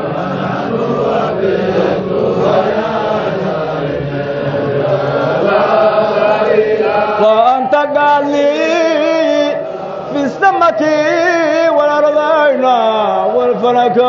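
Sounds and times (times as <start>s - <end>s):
group of men chanting: 0.0s - 14.0s
single man's voice chanting: 5.4s - 14.0s.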